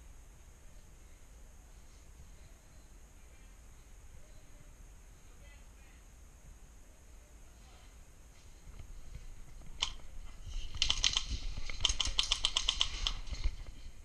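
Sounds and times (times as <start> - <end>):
airsoft gun firing: 10.8 - 13.4.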